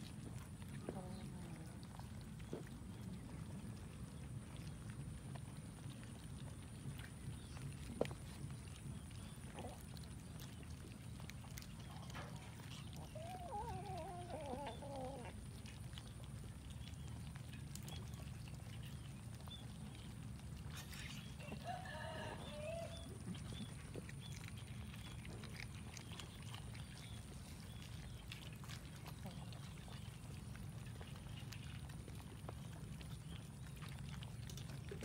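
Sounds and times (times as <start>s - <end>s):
low outdoor rumble: 0.0s - 35.0s
wavering animal calls: 12.6s - 15.5s, 20.7s - 25.2s.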